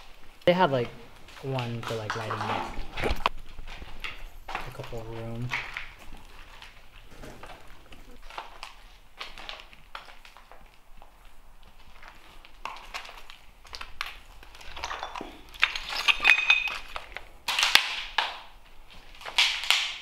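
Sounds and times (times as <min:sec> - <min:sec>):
footsteps crunching over rubble: 0:00.0 - 0:19.6
pieces clinking together: 0:14.6 - 0:17.9.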